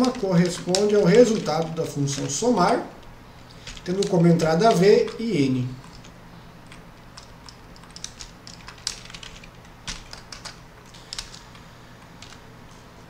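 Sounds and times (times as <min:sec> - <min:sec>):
computer keyboard key clicks: 0:06.7 - 0:11.5.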